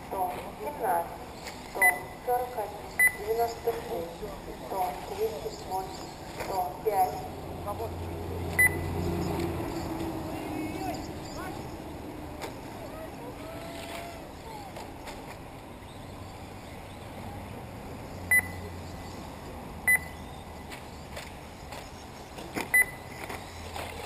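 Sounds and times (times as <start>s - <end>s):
outdoor track background noise: 0.0s - 24.0s
high electronic double beeps: 8.6s - 9.3s, 18.3s - 18.6s.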